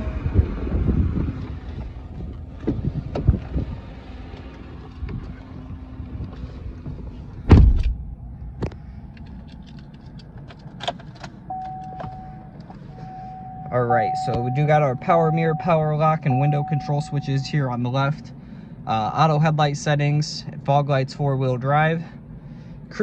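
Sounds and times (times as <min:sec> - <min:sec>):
heavy door thud: 0:07.5 - 0:08.0
electronic chime: 0:13.0 - 0:17.7.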